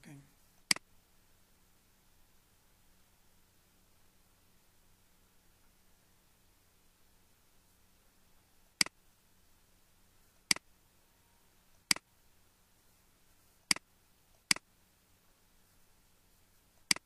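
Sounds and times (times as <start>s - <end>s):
faint steady hum: 0.0s - 17.0s
computer mouse clicking: 14.4s - 14.6s, 16.8s - 17.0s.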